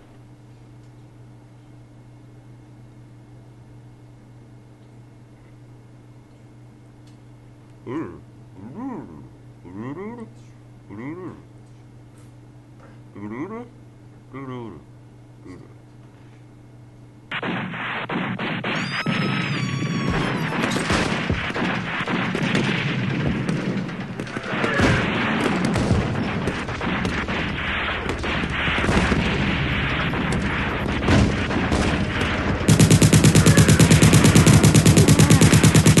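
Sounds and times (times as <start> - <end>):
booms: 17.3 - 36.0
rifle and machine-gun fire: 17.3 - 36.0
falling whistle: 18.6 - 21.1.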